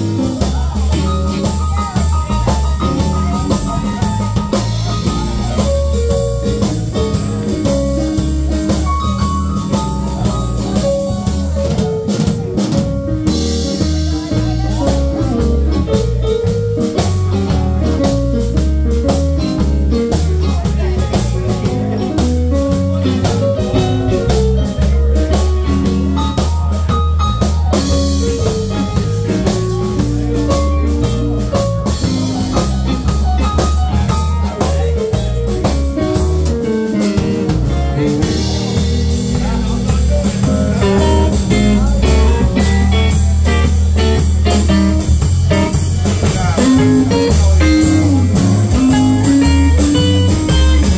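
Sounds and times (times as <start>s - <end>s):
bass: 0.0s - 50.9s
drum kit: 0.0s - 50.9s
keyboard: 0.0s - 50.9s
electric guitar lines: 27.9s - 50.9s.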